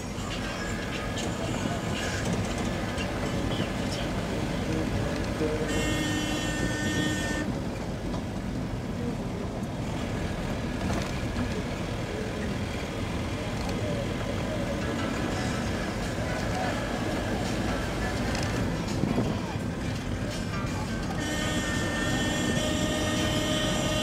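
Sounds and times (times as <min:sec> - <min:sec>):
vehicle running noise: 0:00.0 - 0:24.0
vehicle horn: 0:05.6 - 0:07.5, 0:21.2 - 0:24.0.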